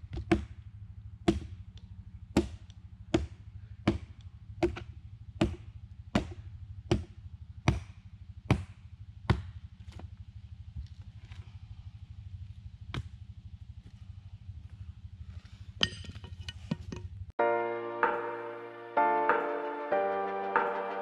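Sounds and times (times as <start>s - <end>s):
hatchet chopping wood: 0.0s - 10.1s, 12.9s - 13.2s.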